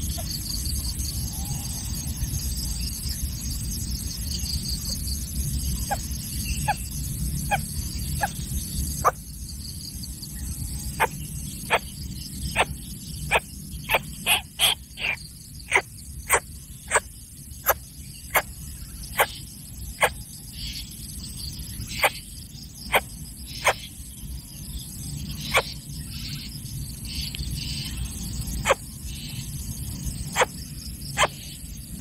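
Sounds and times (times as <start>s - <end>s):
high insect drone: 0.0s - 32.0s.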